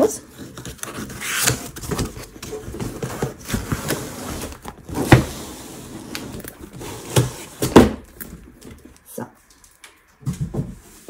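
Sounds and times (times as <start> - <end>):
cardboard rustling: 0.0 - 9.0
cardboard box scraping: 0.2 - 8.0.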